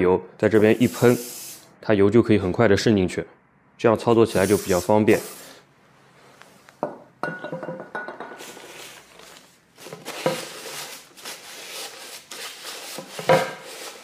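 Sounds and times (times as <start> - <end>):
clinks and knocks: 7.2 - 8.4
paper towel rubbing cutting board: 8.5 - 14.0.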